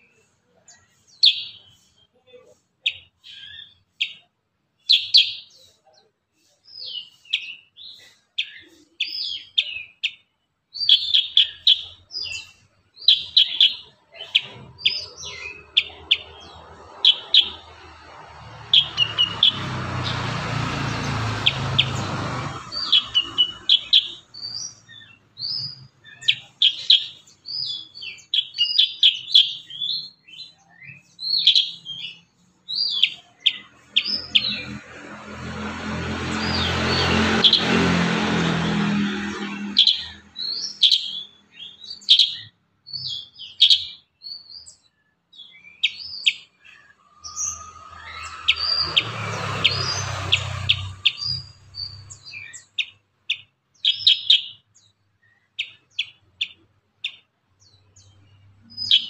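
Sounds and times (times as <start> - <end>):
bulbul chirping song: 0.0 - 35.5, 36.2 - 59.0.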